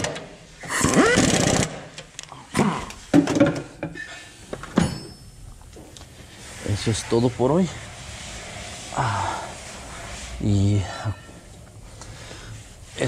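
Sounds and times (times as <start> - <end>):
pneumatic impact wrench: 0.0 - 2.0.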